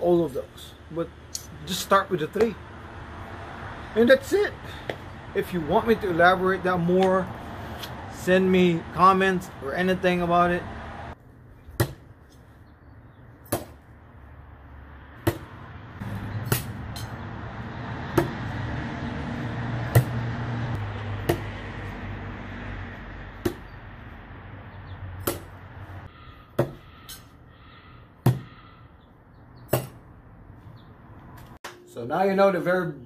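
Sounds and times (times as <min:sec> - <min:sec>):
knives thudding into wood: 0:25.2 - 0:25.5, 0:26.6 - 0:26.8, 0:28.2 - 0:28.6, 0:29.7 - 0:30.0.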